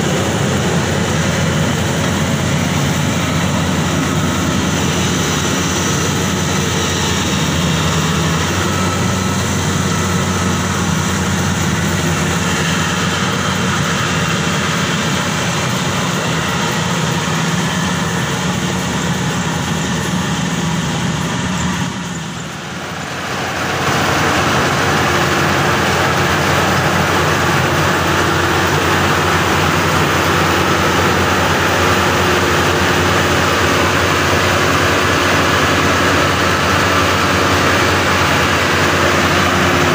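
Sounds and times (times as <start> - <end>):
combine harvester running: 0.0 - 39.9.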